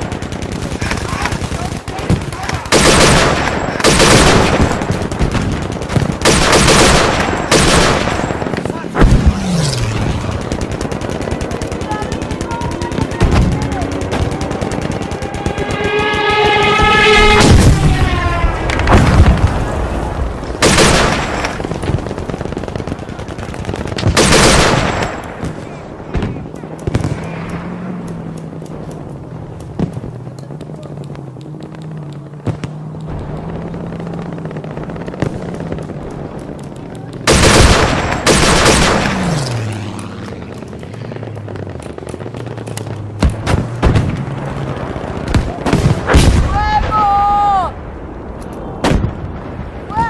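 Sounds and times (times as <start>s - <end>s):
airsoft guns firing full auto: 0.0s - 16.5s, 20.6s - 25.8s, 33.4s - 44.0s.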